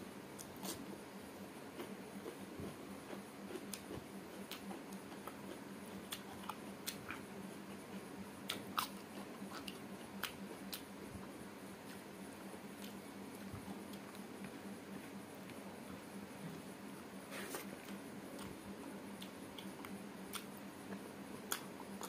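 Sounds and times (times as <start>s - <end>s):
chewing: 1.8s - 7.2s, 8.5s - 10.8s
lip smacks: 8.4s - 10.9s, 19.2s - 22.0s.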